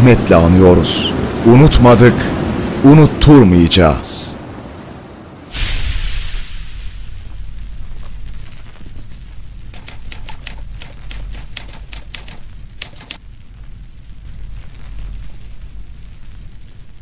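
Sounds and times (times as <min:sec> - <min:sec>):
steady low rumble: 0:05.8 - 0:17.0
typewriter key clacks: 0:09.8 - 0:13.2.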